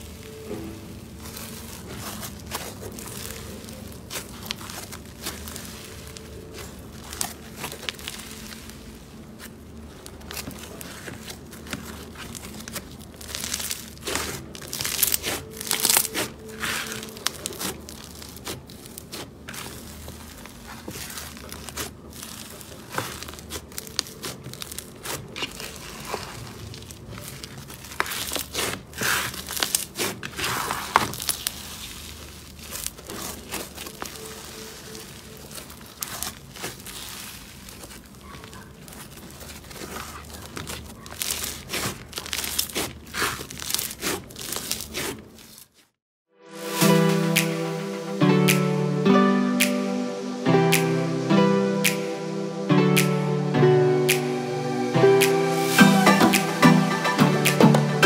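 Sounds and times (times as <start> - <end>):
slime crackling and crunching: 0.0 - 46.0.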